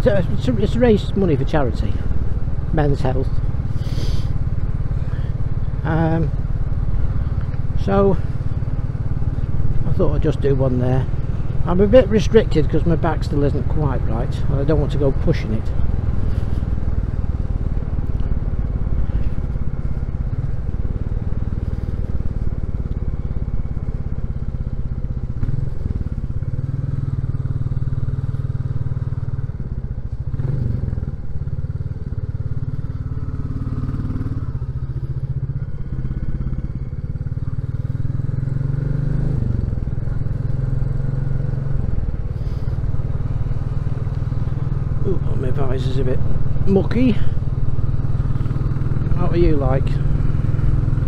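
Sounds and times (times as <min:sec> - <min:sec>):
motorcycle engine running: 0:00.0 - 0:51.0.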